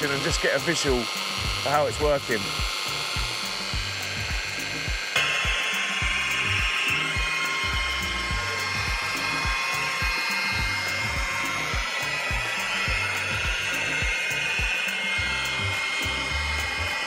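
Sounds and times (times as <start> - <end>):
electric polisher whining: 0.0 - 17.0.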